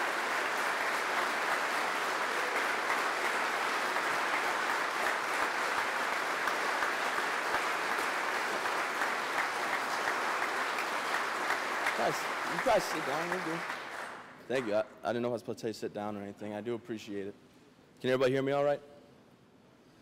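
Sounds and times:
crowd applauding: 0.0 - 14.8.

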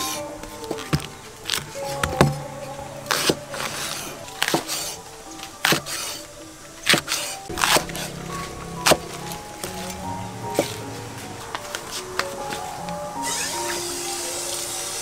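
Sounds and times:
background music: 0.0 - 15.0
knife chopping on wooden board: 5.6 - 6.0.

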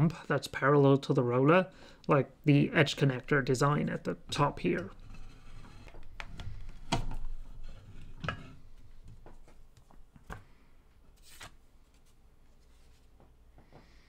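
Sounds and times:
paper card rustling: 11.1 - 13.1.

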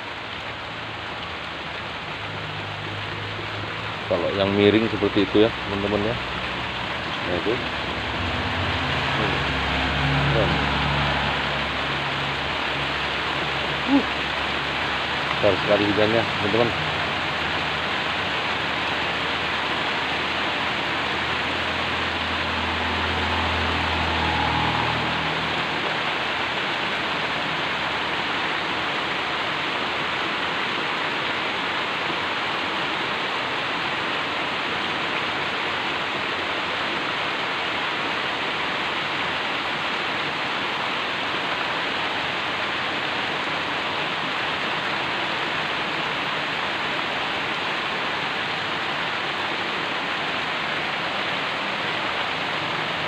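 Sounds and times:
heavy rain pouring: 0.0 - 53.0
low rumble: 6.2 - 15.5, 19.4 - 28.0.

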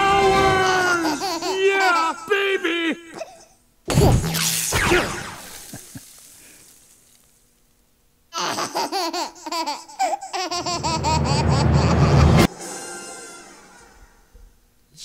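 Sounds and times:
baby laughing and giggling: 0.8 - 2.3, 8.3 - 12.5
loud low rumble: 10.7 - 12.5.

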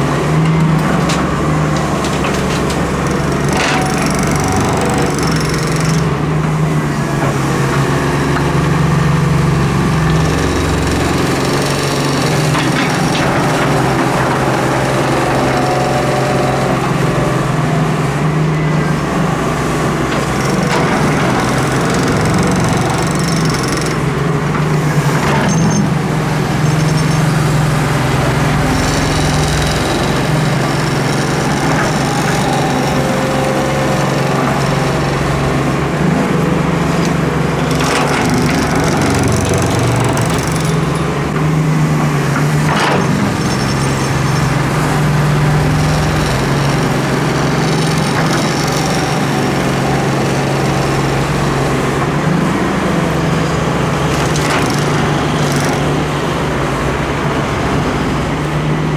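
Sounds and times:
excavator diesel engine running: 0.0 - 58.9.

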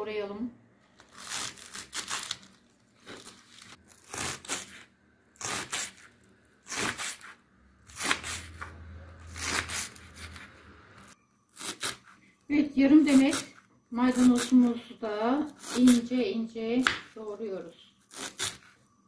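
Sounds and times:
knife slicing onions on board: 6.7 - 10.6.

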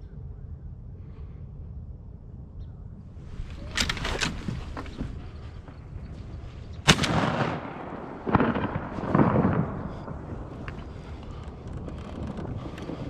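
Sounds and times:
dull bursts of noise: 0.0 - 13.0
shotgun blast: 6.8 - 10.3.

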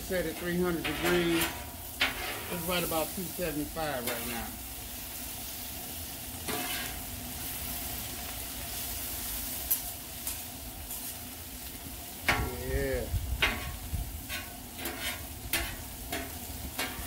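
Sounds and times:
vegetables sizzling on griddle: 0.0 - 17.0
metal spatulas scraping and clicking: 0.4 - 2.6, 4.0 - 4.5, 6.5 - 7.0, 13.4 - 17.0.

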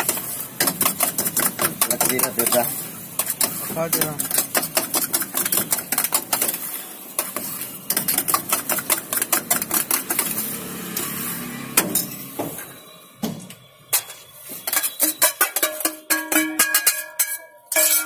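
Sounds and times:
steel spoon clinking on saucepan: 0.0 - 10.4, 13.9 - 18.0.

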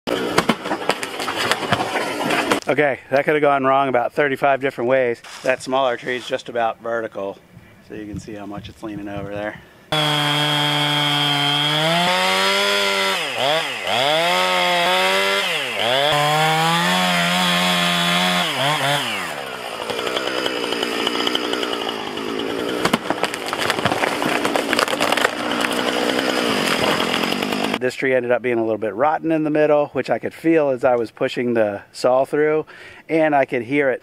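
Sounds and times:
chainsaw cutting at full throttle: 0.1 - 2.6, 9.9 - 27.8
wood cracking and snapping: 0.2 - 2.7, 15.0 - 27.8.

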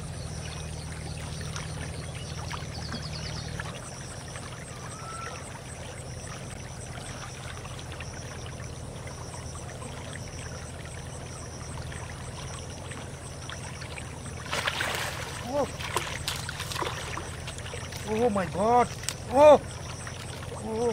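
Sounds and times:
faint high chirps: 0.0 - 6.4
shallow water flowing: 0.0 - 20.9.

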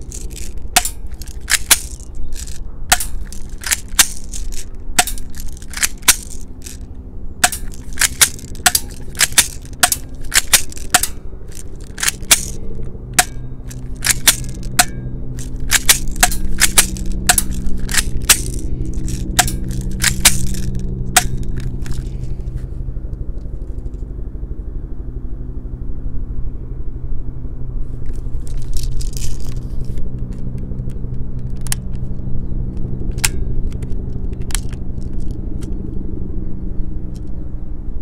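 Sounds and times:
airsoft pistol plastic snaps: 0.1 - 6.8, 7.4 - 12.6, 13.2 - 22.2, 30.2 - 35.8.

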